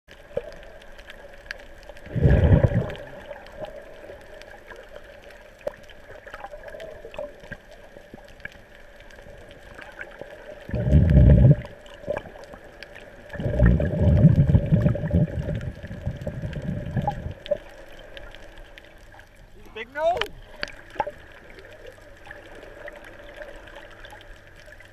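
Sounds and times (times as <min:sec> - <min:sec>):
faint steady underwater hum: 0:00.1 - 0:24.9
water rushing past camera: 0:02.0 - 0:03.7, 0:10.6 - 0:12.5, 0:13.2 - 0:18.6.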